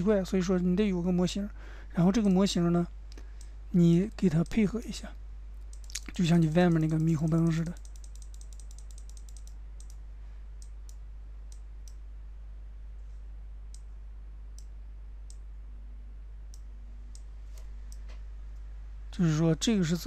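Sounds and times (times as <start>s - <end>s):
low electrical hum: 0.0s - 20.0s
computer mouse clicking: 5.6s - 10.0s.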